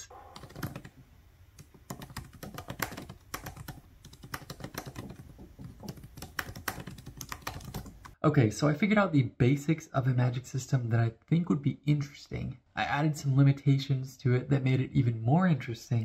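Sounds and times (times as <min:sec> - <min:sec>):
laptop keyboard typing: 0:00.3 - 0:00.9, 0:01.6 - 0:08.2.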